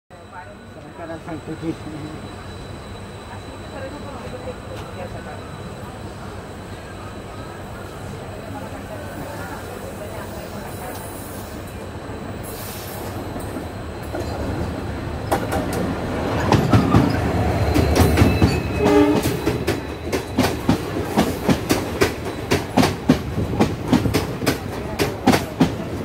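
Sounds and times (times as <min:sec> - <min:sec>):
diesel locomotive engine rumble: 0:00.1 - 0:26.0
train horn: 0:18.7 - 0:19.6.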